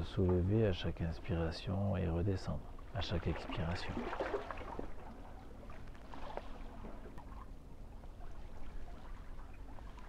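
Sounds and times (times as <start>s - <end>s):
small waves lapping: 2.5s - 10.0s.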